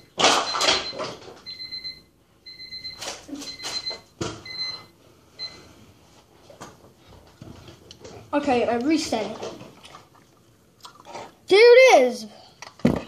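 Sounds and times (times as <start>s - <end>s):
electronic alarm beeping: 0.0s - 5.6s.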